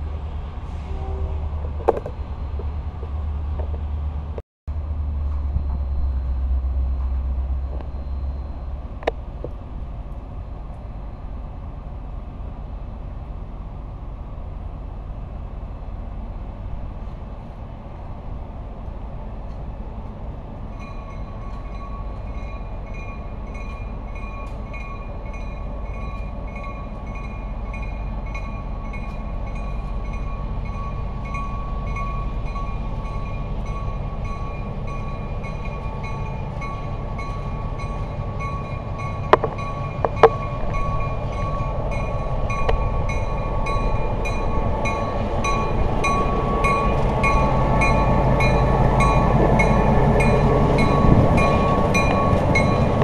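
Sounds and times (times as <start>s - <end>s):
diesel locomotive rumbling: 0.0s - 53.0s
locomotive bell ringing: 20.8s - 53.0s.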